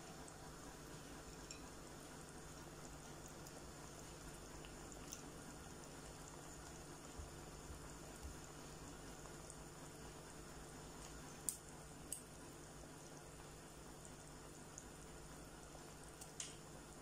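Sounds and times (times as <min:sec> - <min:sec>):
curry bubbling in a pot: 0:00.0 - 0:17.0.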